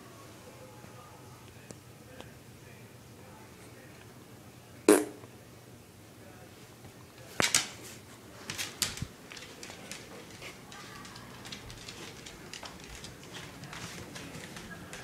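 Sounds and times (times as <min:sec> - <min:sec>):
dog moving on hard floor: 0:08.4 - 0:15.0.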